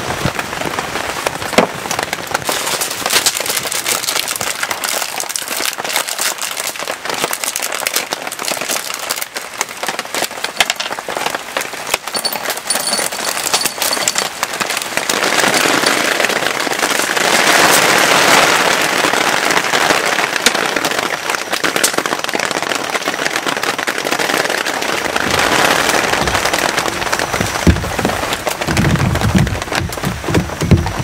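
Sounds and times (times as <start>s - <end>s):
heavy rain falling: 0.0s - 31.0s
low knocks and rumbling: 25.2s - 31.0s.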